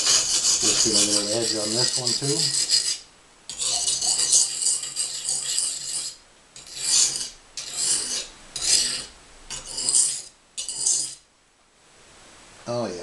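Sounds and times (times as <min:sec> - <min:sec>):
knife scraping on whetstone: 0:00.0 - 0:11.2.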